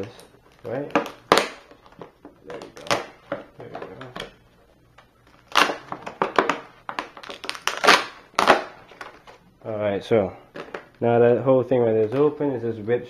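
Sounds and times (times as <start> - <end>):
plastic packaging ripping and crinkling: 0.0 - 4.3, 5.0 - 9.4.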